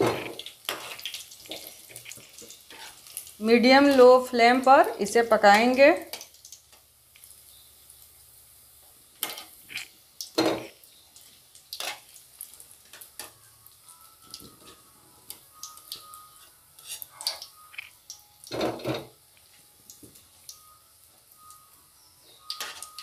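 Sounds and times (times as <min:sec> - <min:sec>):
food sizzling in hot oil: 0:00.0 - 0:23.0
metal spoon clinking on pan: 0:22.4 - 0:23.0.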